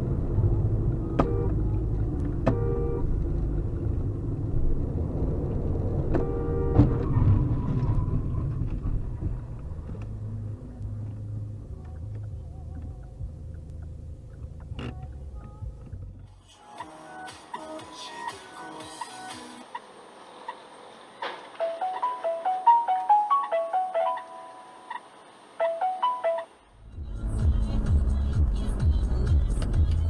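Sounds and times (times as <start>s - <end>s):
road and engine rumble: 0.0s - 30.0s
car horn: 1.1s - 1.8s, 2.4s - 3.1s, 6.1s - 7.4s, 25.6s - 26.6s.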